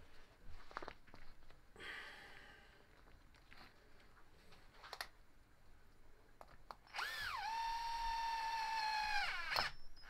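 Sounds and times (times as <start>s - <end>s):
cordless drill whine: 6.9s - 10.0s.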